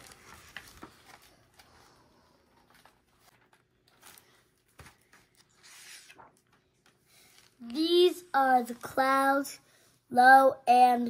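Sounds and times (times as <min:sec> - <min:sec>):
paper rustling: 0:00.0 - 0:07.8.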